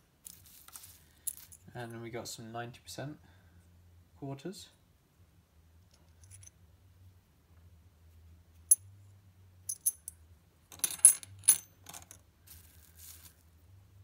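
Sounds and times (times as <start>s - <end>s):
coins clinking on wooden table: 9.7s - 12.2s.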